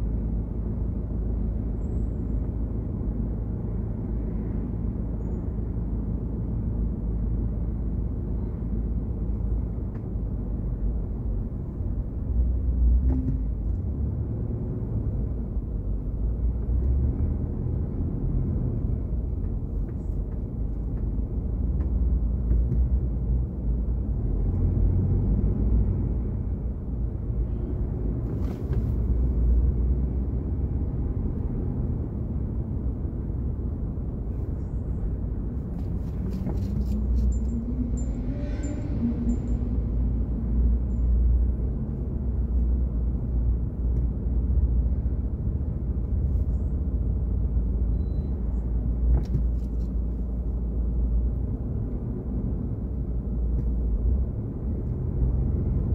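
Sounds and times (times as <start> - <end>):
car driving rumble: 0.0 - 55.9.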